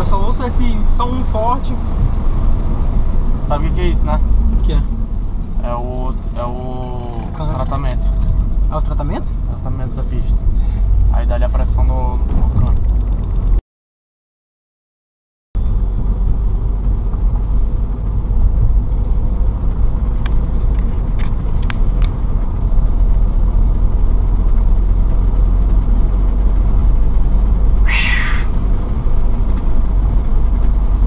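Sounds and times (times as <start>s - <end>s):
car engine and road rumble: 0.0s - 13.6s, 15.6s - 31.0s
short hiss: 27.9s - 28.6s.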